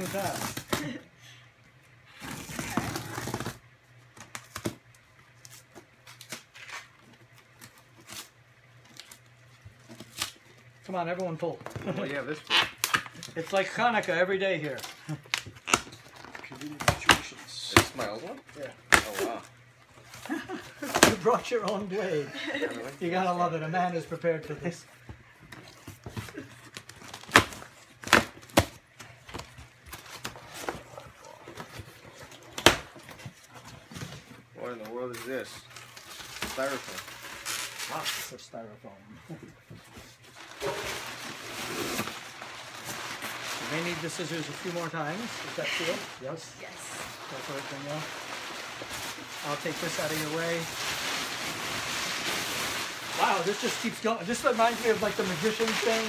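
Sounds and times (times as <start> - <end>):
cardboard ripping: 0.0 - 1.0, 2.2 - 3.6, 14.7 - 21.8, 25.7 - 34.0, 35.1 - 38.4, 40.3 - 56.0
cardboard scraping and rustling: 39.8 - 56.0.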